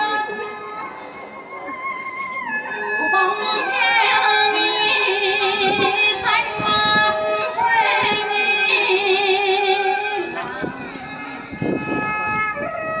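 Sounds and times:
gliding melody with vibrato: 0:00.0 - 0:13.0.

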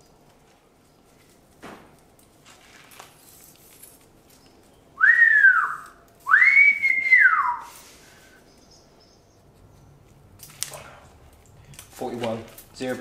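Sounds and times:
person whistling: 0:05.0 - 0:07.9.

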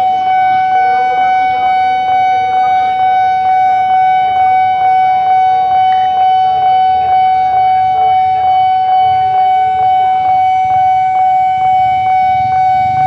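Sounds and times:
level crossing warning alarm: 0:00.0 - 0:13.0.

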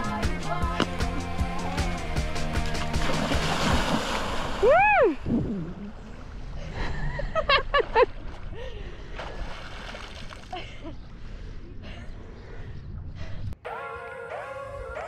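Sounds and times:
water splashing and churning: 0:00.0 - 0:06.8, 0:07.6 - 0:10.8
person whooping: 0:04.6 - 0:05.7.

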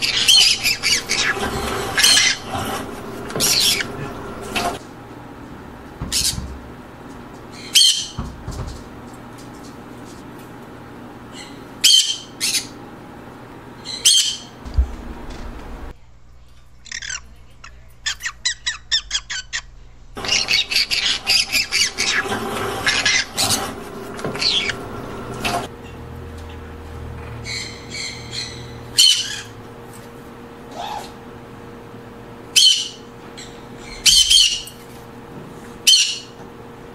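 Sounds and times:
parrots squawking: 0:00.0 - 0:04.8, 0:07.6 - 0:08.2, 0:11.3 - 0:12.8, 0:13.8 - 0:14.6, 0:16.8 - 0:25.7, 0:27.4 - 0:29.6, 0:32.5 - 0:34.8, 0:35.8 - 0:36.4.

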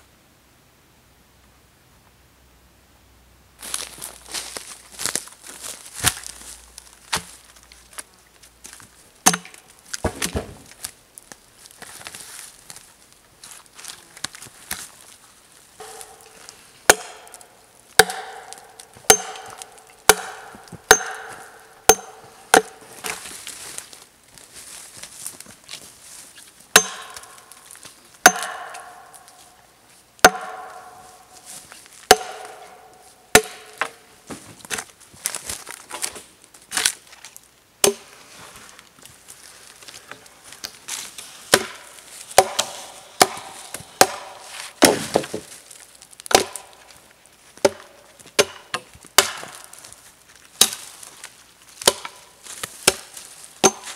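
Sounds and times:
hatchet chopping wood: 0:09.2 - 0:10.5, 0:15.8 - 0:22.8, 0:26.7 - 0:27.5, 0:28.2 - 0:29.4, 0:30.2 - 0:31.1, 0:32.1 - 0:34.0, 0:37.8 - 0:38.0, 0:41.5 - 0:45.5, 0:46.3 - 0:46.8, 0:47.6 - 0:49.7, 0:50.6 - 0:50.8, 0:51.8 - 0:52.2, 0:52.8 - 0:53.9.

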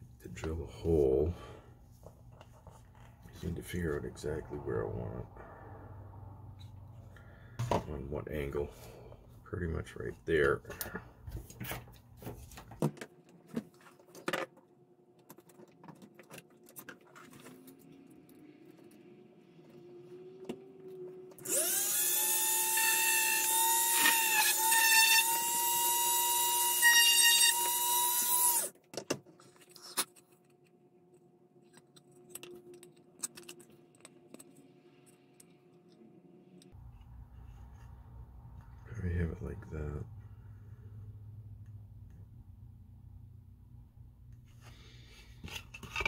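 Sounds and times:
rotary tool drilling: 0:21.4 - 0:28.7.

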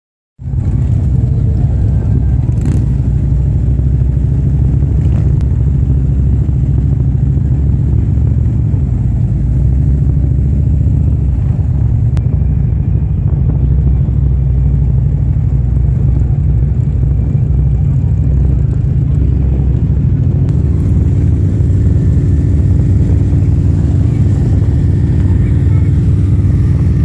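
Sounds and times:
motorcycle engine rumbling: 0:00.4 - 0:27.0
second motorcycle running: 0:00.4 - 0:27.0.

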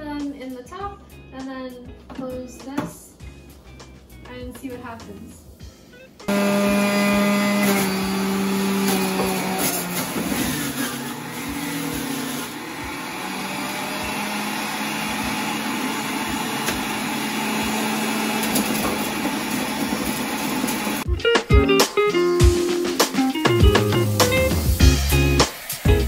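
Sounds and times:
electric juicer motor humming: 0:06.3 - 0:21.1.

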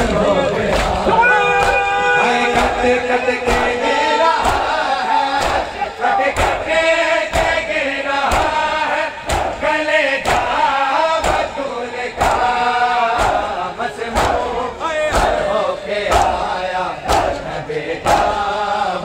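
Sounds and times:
crowd of men chanting: 0:00.0 - 0:19.0.

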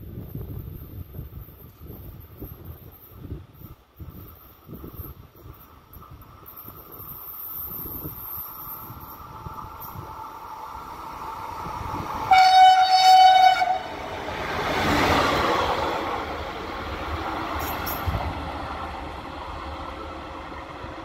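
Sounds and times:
train rumbling past: 0:00.0 - 0:21.0
locomotive horn: 0:12.3 - 0:14.0.

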